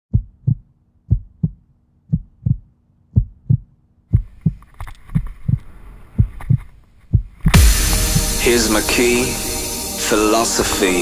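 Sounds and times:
heartbeat low thumps: 0.1s - 4.6s, 6.2s - 10.0s
music with higher sounds: 7.6s - 11.0s.

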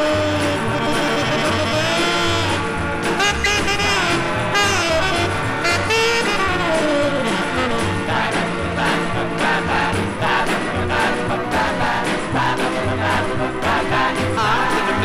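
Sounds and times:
pop song from vinyl record: 0.0s - 15.0s.

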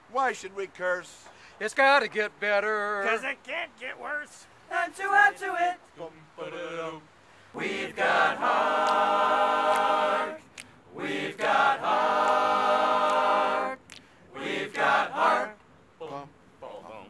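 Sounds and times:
group singing in harmony: 6.4s - 15.6s.

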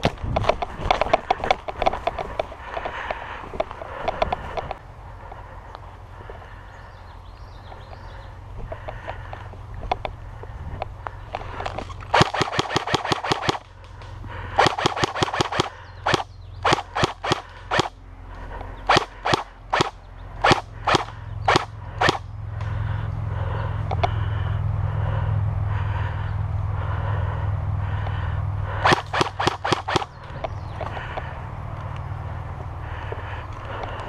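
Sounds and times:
steady low hum: 0.0s - 34.0s
airsoft gun single shots: 12.1s - 13.6s, 14.6s - 17.9s, 18.9s - 22.2s, 28.8s - 30.1s
airsoft gun full-auto bursts: 12.1s - 13.8s, 14.6s - 18.0s, 18.9s - 22.2s, 28.8s - 30.1s.

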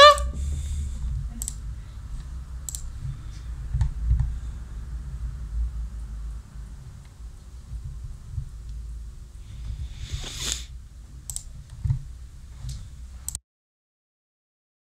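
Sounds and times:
low uneven rumble: 0.2s - 13.3s
sharp clicks: 1.4s - 1.6s, 2.6s - 2.9s, 11.3s - 11.8s.

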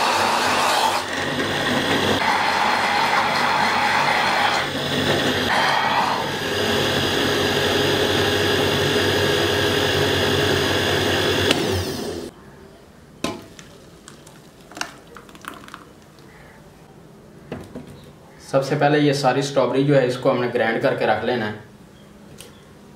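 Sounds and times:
blender running: 0.0s - 12.3s.

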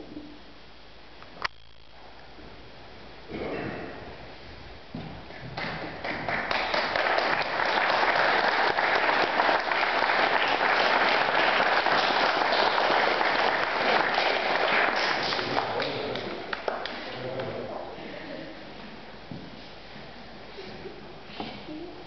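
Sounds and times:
audience applauding: 5.6s - 17.5s.

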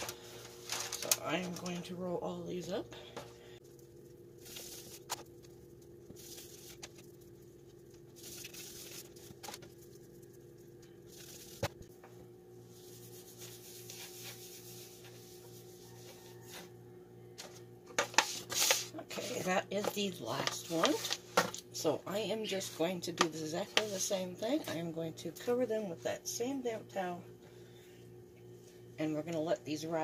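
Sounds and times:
faint steady hum: 0.0s - 30.0s
hands rubbing dough on board: 12.7s - 16.4s.

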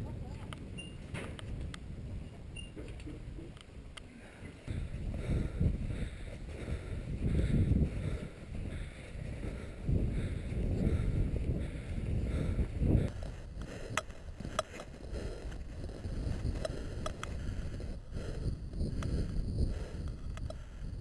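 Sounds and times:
wind buffeting microphone: 0.0s - 21.0s
faint clicks: 13.1s - 17.9s, 20.0s - 20.8s.

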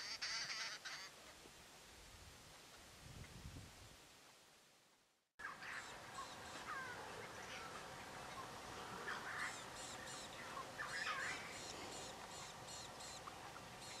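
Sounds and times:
birds slurred calls: 5.4s - 14.0s.

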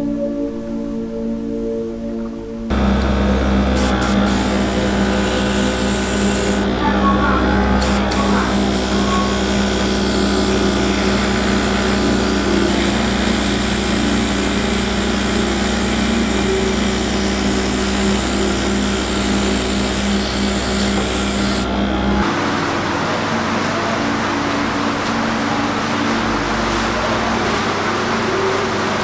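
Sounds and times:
airbrush hissing: 2.7s - 6.9s, 7.7s - 21.7s
air compressor humming: 2.7s - 24.9s.

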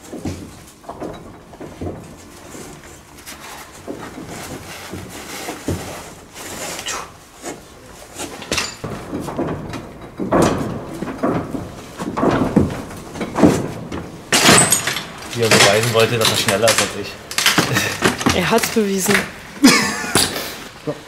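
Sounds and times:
boots and hands knocking on wood: 8.5s - 14.6s.

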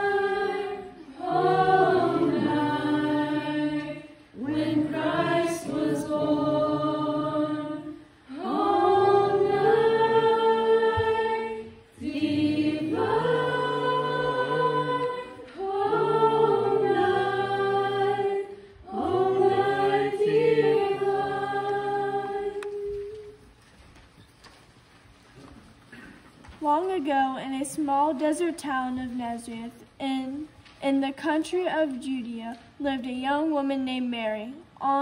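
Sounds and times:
group of voices singing: 0.0s - 23.4s.

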